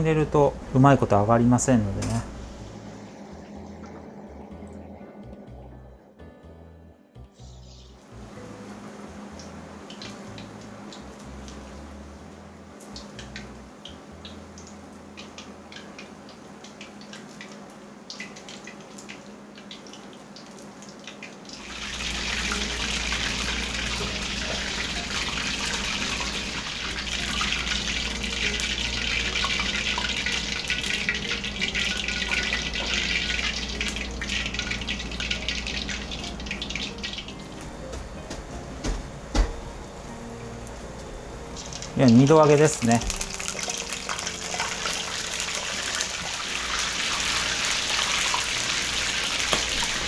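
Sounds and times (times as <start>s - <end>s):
fritters sizzling in hot oil: 12.8s - 37.5s, 41.6s - 50.0s.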